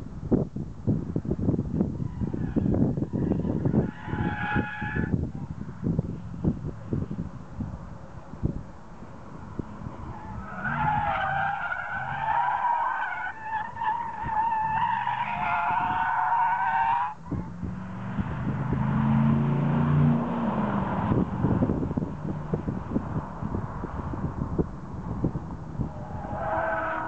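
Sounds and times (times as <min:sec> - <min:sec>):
car engine revving: 0:17.1 - 0:27.0.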